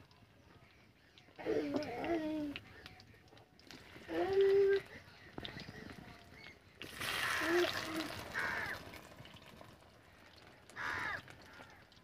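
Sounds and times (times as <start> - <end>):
food frying in hot oil: 5.2 - 12.0
crow cawing: 7.1 - 9.0, 10.8 - 11.9.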